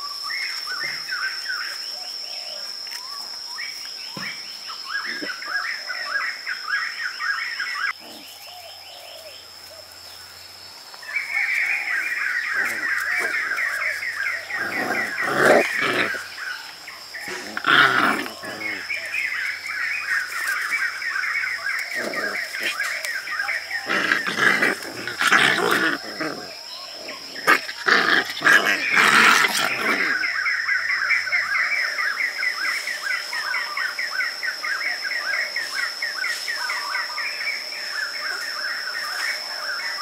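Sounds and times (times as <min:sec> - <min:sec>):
insects chirring: 0:00.0 - 0:40.0.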